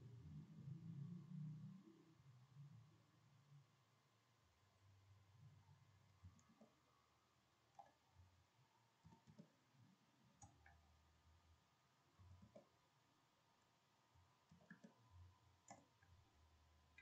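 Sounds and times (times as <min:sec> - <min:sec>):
keyboard typing: 0:09.0 - 0:09.6, 0:12.3 - 0:12.7, 0:14.4 - 0:15.0
mouse clicks: 0:09.0 - 0:09.6, 0:10.4 - 0:10.8, 0:12.4 - 0:12.8, 0:14.4 - 0:15.0, 0:15.6 - 0:16.1.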